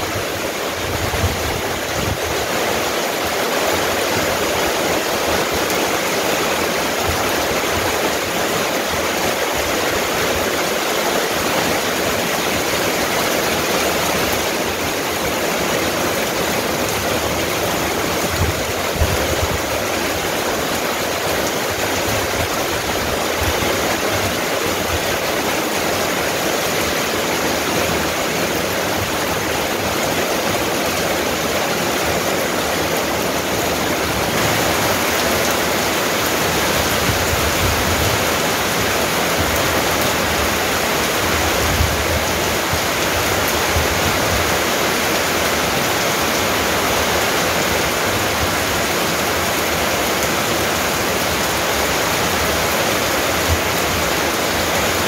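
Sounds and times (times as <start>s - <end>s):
steady rain: 0.0s - 55.0s.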